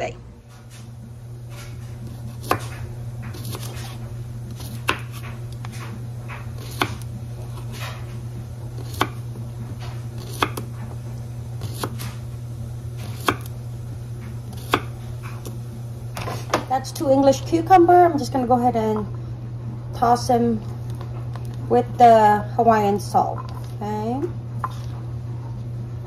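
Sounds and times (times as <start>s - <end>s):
steady low hum: 0.0s - 26.0s
knife slicing on cutting board: 2.0s - 5.9s, 6.5s - 8.0s, 8.8s - 9.2s, 10.2s - 10.8s, 11.6s - 12.2s, 13.0s - 13.5s, 14.5s - 15.6s.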